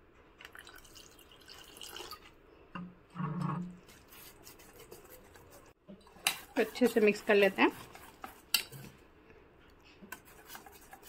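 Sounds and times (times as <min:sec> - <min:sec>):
water pouring into a bowl: 0:00.4 - 0:02.3.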